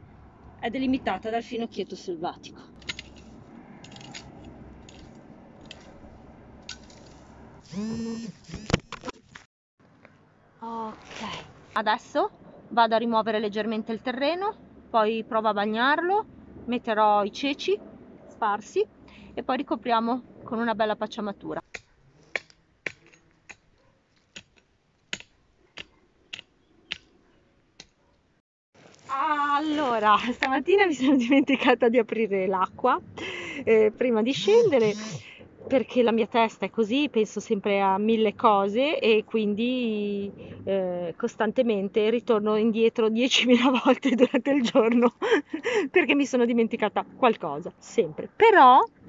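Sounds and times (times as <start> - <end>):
garden tool scraping soil: 2.8 - 8.7, 28.8 - 30.5.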